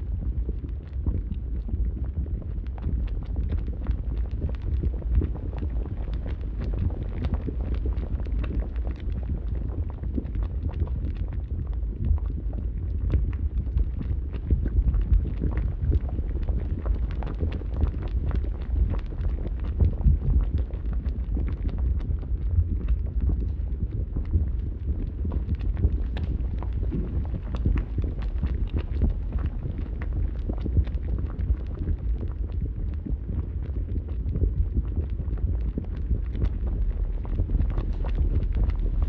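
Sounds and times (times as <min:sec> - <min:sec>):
flames rumbling: 0:00.0 - 0:39.0
fire crackling: 0:13.9 - 0:39.0.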